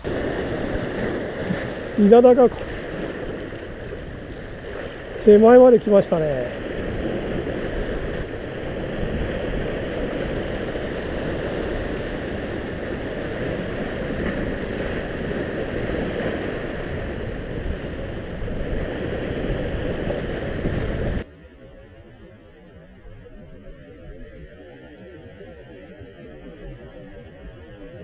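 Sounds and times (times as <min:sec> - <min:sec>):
sea waves against rocks: 0:00.0 - 0:21.2
wind on microphone: 0:00.0 - 0:28.0.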